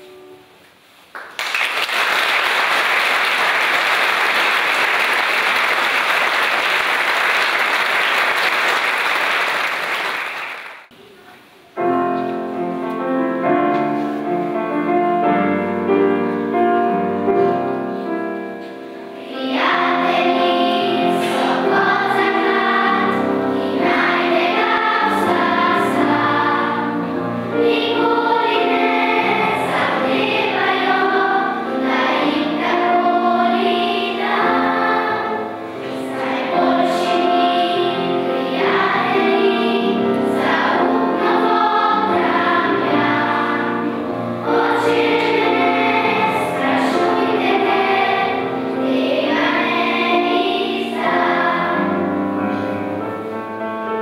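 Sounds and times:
piano: 0:00.0 - 0:54.0
audience applauding: 0:01.2 - 0:10.9
children's choir singing: 0:01.6 - 0:54.0.

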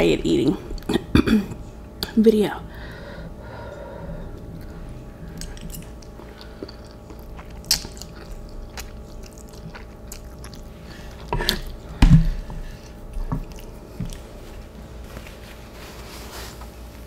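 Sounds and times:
person chewing noodles: 0:03.6 - 0:15.0.

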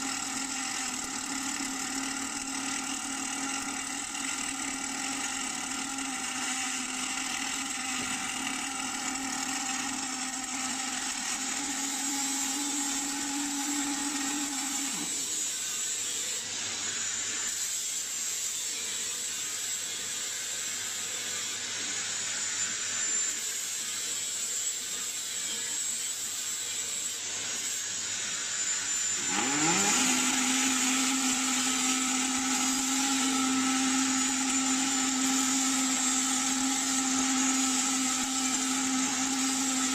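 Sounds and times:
welding machine hum: 0:00.0 - 0:16.4, 0:28.6 - 0:39.9.

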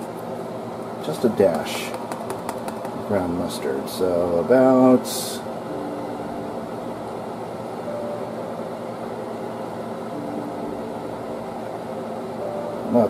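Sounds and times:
faint hum: 0:00.0 - 0:13.0.

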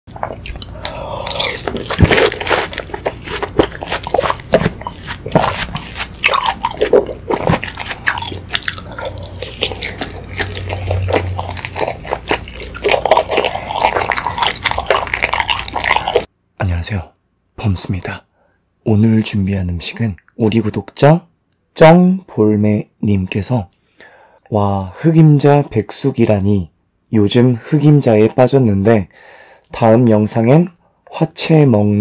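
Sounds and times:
chewing juicy fruit: 0:00.1 - 0:16.3.

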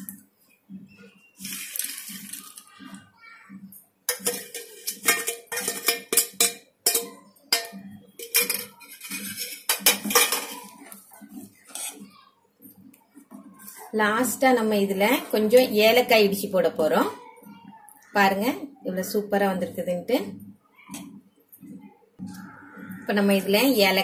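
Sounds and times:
steel ladle scraping a pot: 0:01.4 - 0:02.6, 0:04.1 - 0:12.0.

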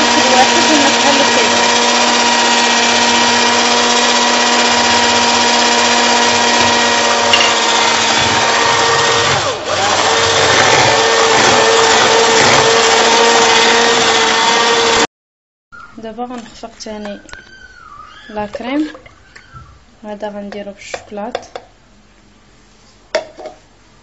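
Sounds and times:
electric hand mixer whining: 0:00.0 - 0:15.1.

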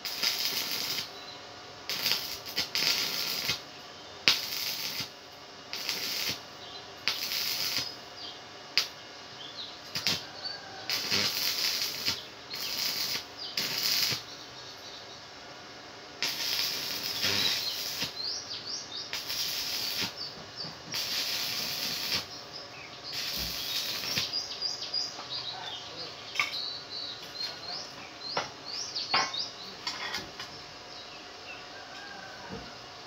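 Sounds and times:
welding arc crackling and hissing: 0:00.0 - 0:09.0, 0:09.8 - 0:14.4, 0:16.2 - 0:26.4.

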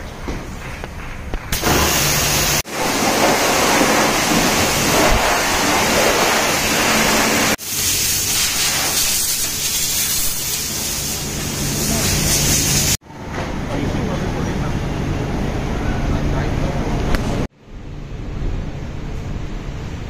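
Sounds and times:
air blower rushing: 0:01.5 - 0:07.8
pressure washer spraying: 0:01.5 - 0:13.0.

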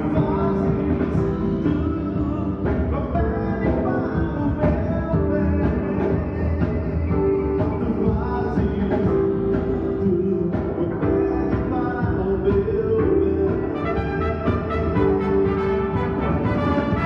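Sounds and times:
live band playing gospel song: 0:00.0 - 0:17.0
person singing: 0:00.0 - 0:17.0
drum hits: 0:10.6 - 0:17.0.

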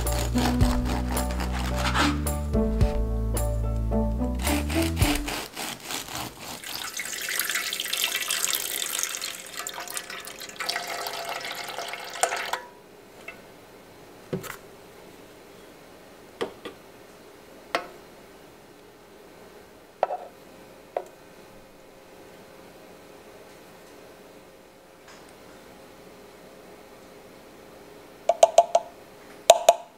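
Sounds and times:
background music: 0:00.0 - 0:05.5
water running from a tap: 0:06.6 - 0:12.6.

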